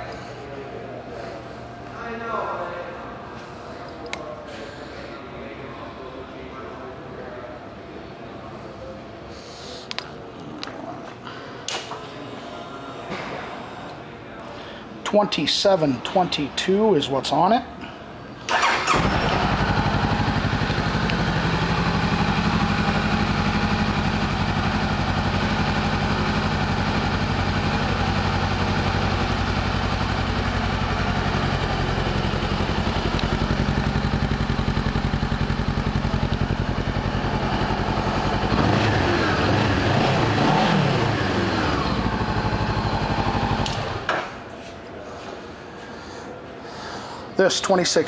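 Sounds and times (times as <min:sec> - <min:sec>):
motorcycle engine idling and revving: 0:18.5 - 0:44.1.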